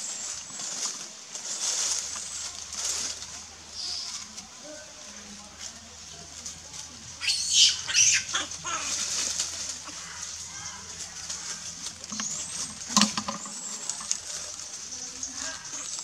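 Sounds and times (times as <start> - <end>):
macaques squealing: 7.2 - 9.3.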